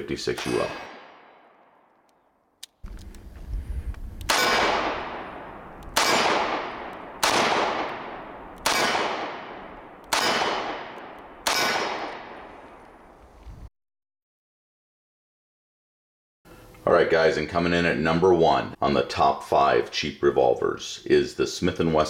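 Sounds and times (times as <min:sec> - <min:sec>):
revolver shots ringing out: 0:04.3 - 0:13.0.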